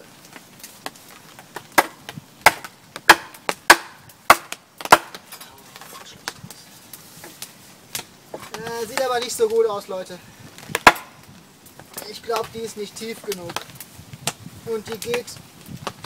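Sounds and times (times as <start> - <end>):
wooden baton knocking on hatchet: 10.7 - 11.1.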